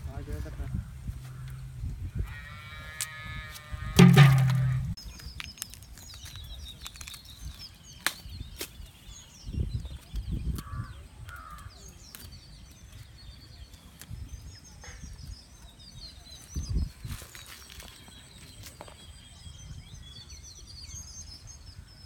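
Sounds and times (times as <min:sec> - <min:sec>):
low rumbles: 0:04.0 - 0:05.0
small birds chirping: 0:04.5 - 0:22.0.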